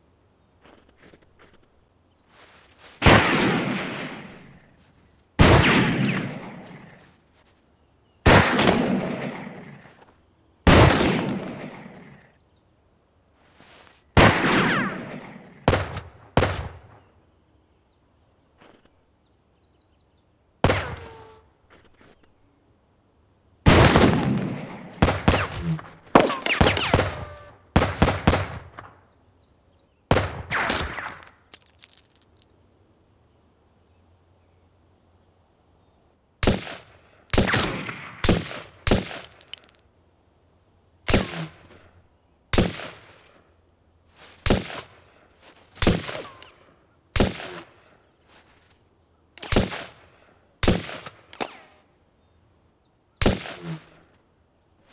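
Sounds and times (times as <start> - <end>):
echoing gunshots: 3.0 - 4.7, 5.4 - 7.0, 8.2 - 10.0, 10.6 - 12.3, 14.2 - 17.1, 23.6 - 29.0, 30.1 - 32.0, 36.4 - 39.8, 41.1 - 41.7, 47.2 - 47.7, 49.4 - 50.0, 50.6 - 51.8, 53.2 - 53.9.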